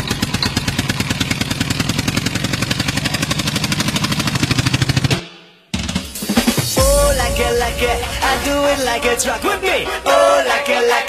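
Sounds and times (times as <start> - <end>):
rapid engine-like pulsing: 0.0 - 5.2, 5.8 - 11.0
low hum: 6.8 - 11.0.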